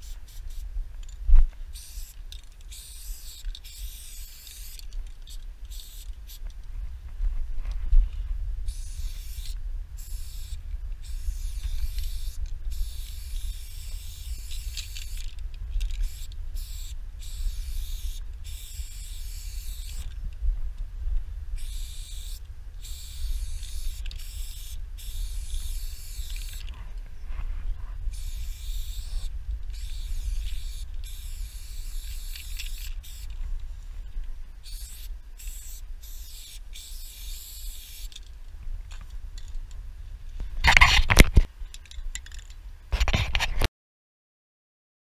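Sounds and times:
spray paint can hissing: 0.0s - 0.7s, 1.7s - 6.4s, 8.7s - 20.1s, 21.6s - 26.7s, 28.1s - 33.4s, 34.6s - 38.2s.

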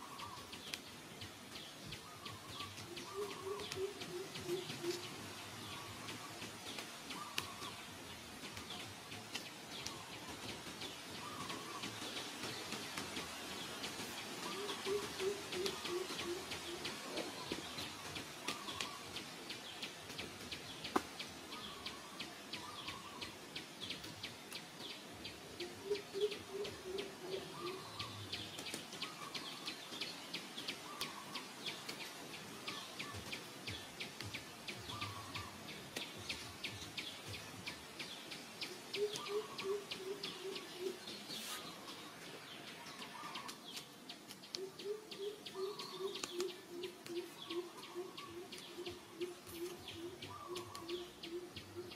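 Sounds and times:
bird low hooting notes: 2.0s - 6.4s, 44.6s - 51.9s.

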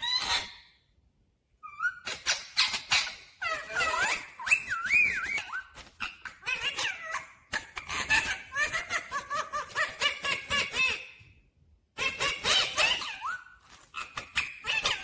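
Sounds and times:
parakeet chattering chirps: 0.0s - 0.8s, 1.6s - 8.9s.

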